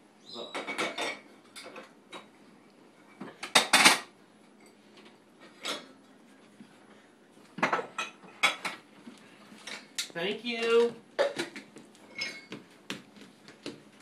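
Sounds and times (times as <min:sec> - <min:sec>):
cutlery and dishes clattering: 0:00.5 - 0:02.3, 0:03.2 - 0:04.8, 0:05.4 - 0:06.0, 0:07.6 - 0:08.8, 0:11.2 - 0:12.6.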